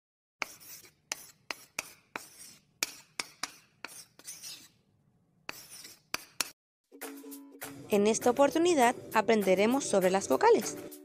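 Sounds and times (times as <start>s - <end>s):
chalk tapping on blackboard: 0.4s - 4.7s, 5.5s - 6.6s
chalk scratching on blackboard: 0.4s - 4.8s, 5.5s - 6.6s.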